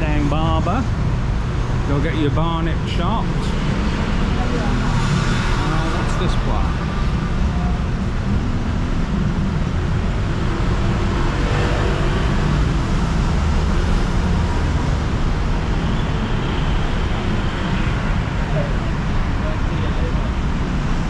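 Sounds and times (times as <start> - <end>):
city street traffic rumble: 0.0 - 21.0.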